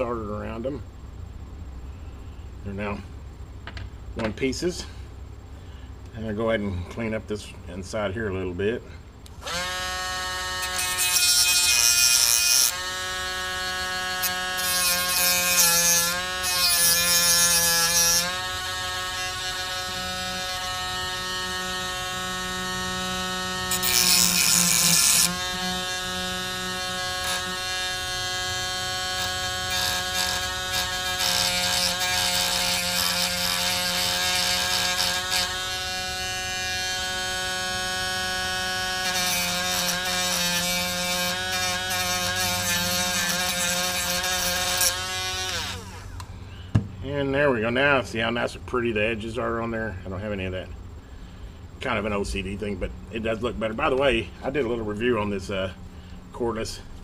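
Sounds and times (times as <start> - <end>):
rotary tool grinding metal: 9.4 - 46.3.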